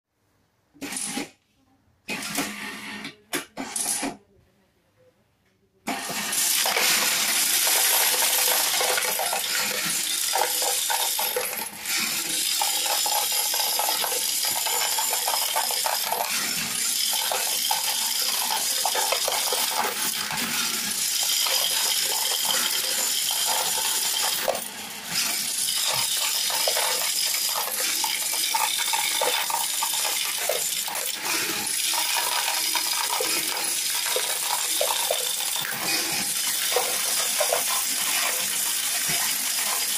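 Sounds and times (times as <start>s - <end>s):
coin sorter clattering coins: 3.6s - 4.2s, 5.9s - 39.9s.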